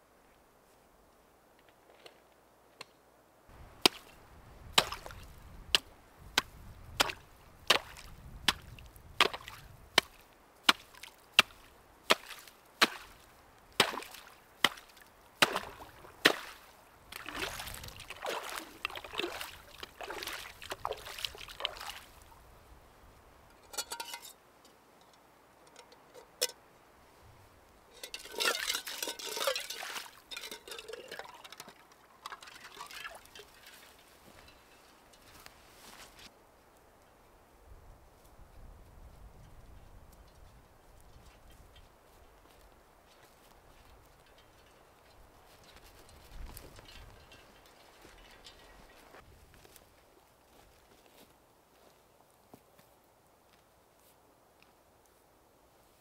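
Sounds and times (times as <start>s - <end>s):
ice crunching and splashing: 3.8s - 5.4s, 6.4s - 22.3s, 27.9s - 34.4s
hatchet chopping ice: 4.8s - 5.2s, 5.8s - 13.2s, 13.8s - 16.6s
metal pot dipped into water: 23.7s - 24.4s, 27.9s - 34.0s.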